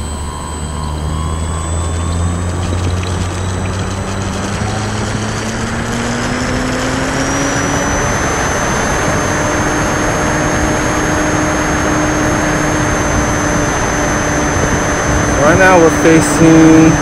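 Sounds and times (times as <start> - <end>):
model airplane motor whine: 0.0 - 17.0
wind rush: 2.6 - 17.0.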